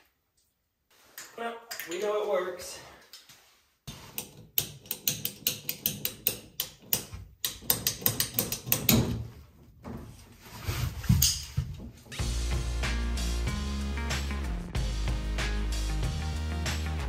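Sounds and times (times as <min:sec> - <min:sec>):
rapid sharp tool clicks: 0:04.6 - 0:09.0.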